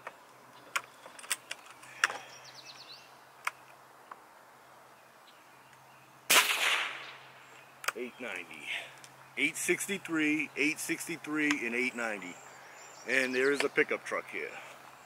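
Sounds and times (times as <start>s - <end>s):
air rifle shot: 6.3s - 7.2s.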